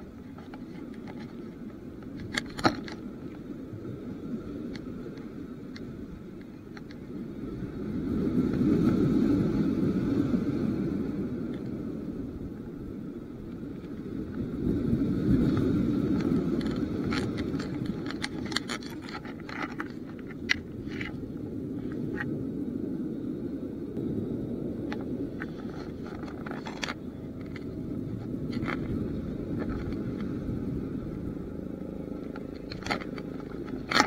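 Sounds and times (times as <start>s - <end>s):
sea waves washing against concrete: 13.2s - 22.6s.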